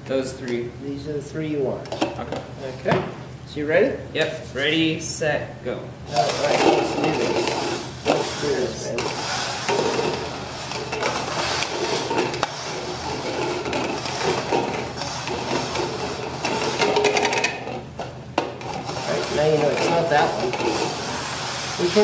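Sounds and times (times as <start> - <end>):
plastic cups scraping on wood: 6.1 - 22.0
cups knocking on table: 13.4 - 19.0.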